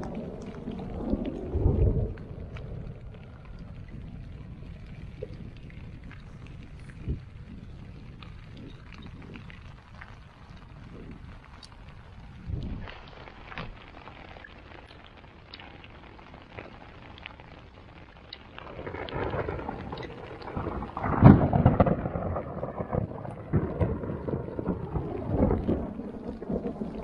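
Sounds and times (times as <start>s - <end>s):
long rolling rumble: 0.0s - 14.0s, 18.6s - 27.0s
rain ticking on tent: 0.0s - 27.0s.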